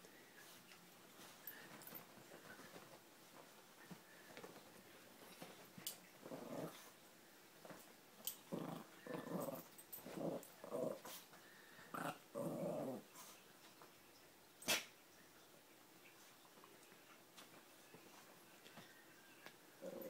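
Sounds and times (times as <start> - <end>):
small dogs play-growling: 6.2 - 7.0, 8.3 - 11.3, 11.9 - 13.3, 19.8 - 20.0.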